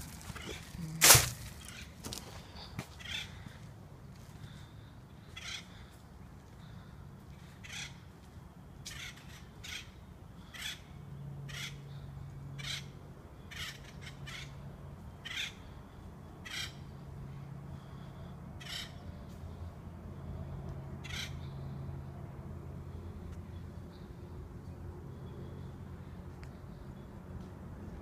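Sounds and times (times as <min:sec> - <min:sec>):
bird harsh calls: 0:00.0 - 0:03.6, 0:05.2 - 0:06.0, 0:06.6 - 0:08.0, 0:08.9 - 0:14.6, 0:15.2 - 0:17.0, 0:17.8 - 0:19.2, 0:21.0 - 0:21.7.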